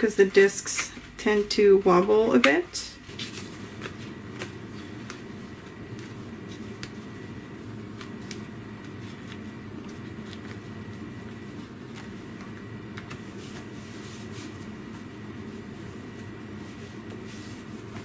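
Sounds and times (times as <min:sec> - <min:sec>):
low room hum: 0:00.0 - 0:18.0
paper pages clicking onto discs: 0:02.3 - 0:07.1, 0:07.9 - 0:13.8.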